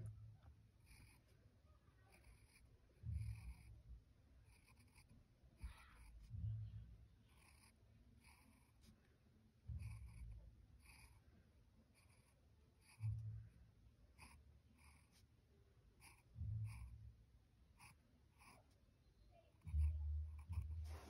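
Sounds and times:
pen scratching on paper: 0.8 - 1.3, 2.1 - 3.8, 4.5 - 6.4, 7.3 - 8.9, 9.7 - 11.2, 12.0 - 13.2, 14.2 - 15.3, 16.0 - 16.9, 17.8 - 18.7, 19.6 - 21.0.

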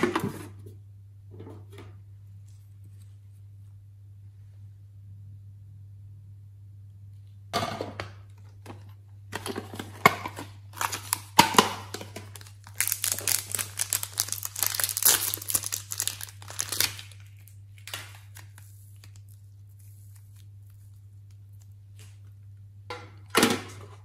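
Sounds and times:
plastic packet crinkling: 9.7 - 22.4.

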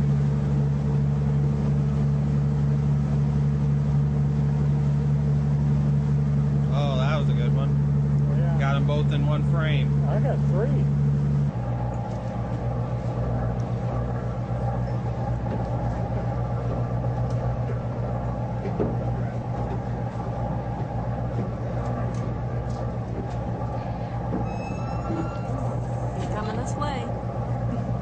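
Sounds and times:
boat engine humming: 0.0 - 28.0
water noise: 0.0 - 28.0.

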